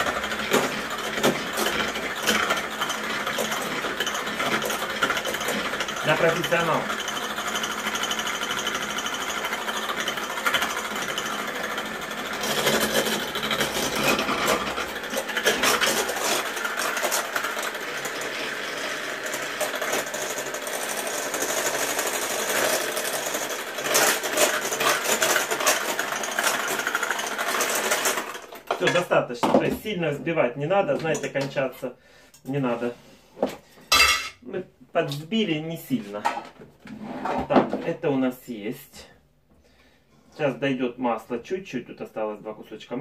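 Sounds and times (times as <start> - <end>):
electric hand mixer running: 0.0 - 28.8.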